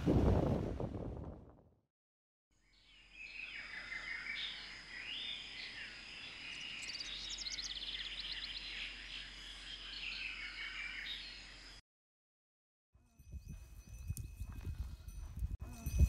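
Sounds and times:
birds calling and chirping: 0:02.7 - 0:11.8.

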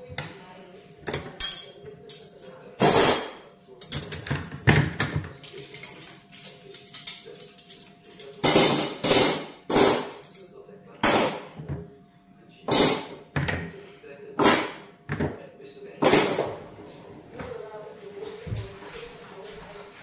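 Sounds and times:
cutlery and dishes clattering: 0:01.0 - 0:11.8, 0:12.7 - 0:13.7, 0:14.4 - 0:15.4, 0:16.0 - 0:16.7.

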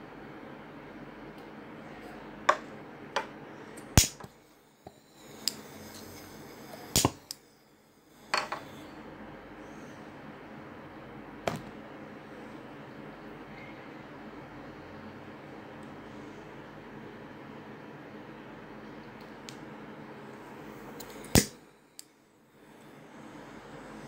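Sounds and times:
steady hiss: 0:04.0 - 0:09.0.

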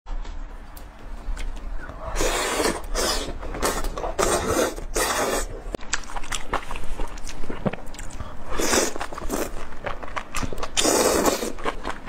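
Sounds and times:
close chewing and mouth noise: 0:00.6 - 0:12.0.

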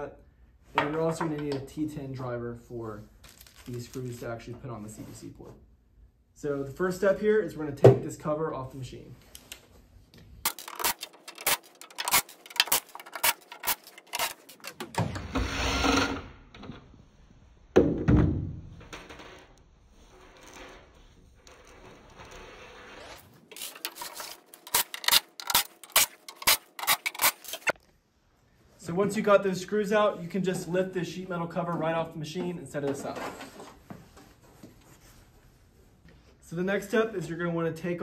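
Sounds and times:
screws and tools clattering: 0:10.5 - 0:15.1, 0:23.4 - 0:27.8.

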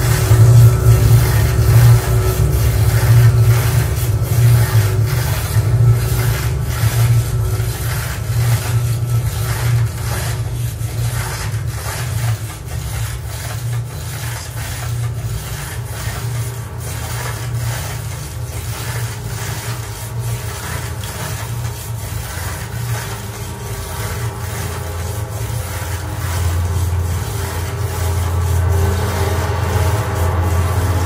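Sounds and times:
rhythmic rubbing rasping pulse: 0:00.0 - 0:31.0
steady low hum: 0:00.0 - 0:31.0.

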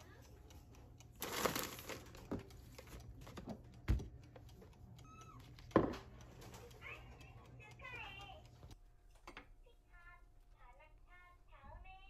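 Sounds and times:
plastic bag crinkling: 0:01.2 - 0:02.2
items thumping on countertop: 0:05.7 - 0:06.0.

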